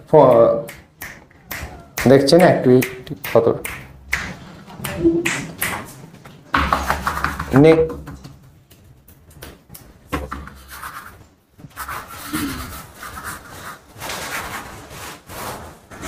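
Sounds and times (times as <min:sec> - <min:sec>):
rubbing and rustling: 0:04.1 - 0:16.0.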